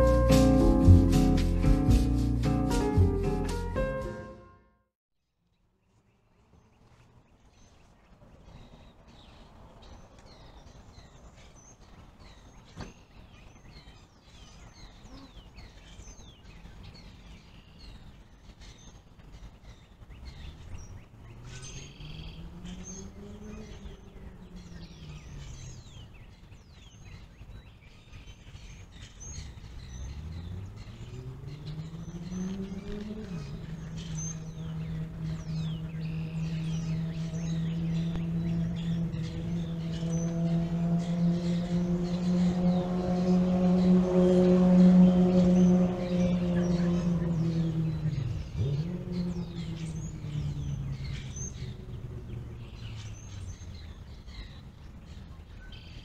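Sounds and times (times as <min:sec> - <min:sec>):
vehicle engine rising and falling: 0:00.0 - 0:04.5, 0:21.4 - 0:26.0, 0:29.4 - 0:54.8
low rumble of road traffic: 0:00.0 - 0:04.7, 0:05.3 - 0:56.0
small birds chirping: 0:05.4 - 0:56.0.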